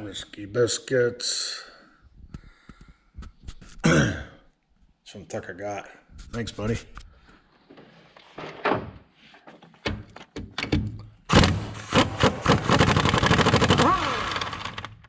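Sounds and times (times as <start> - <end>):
power wrench rattling: 10.6 - 15.0.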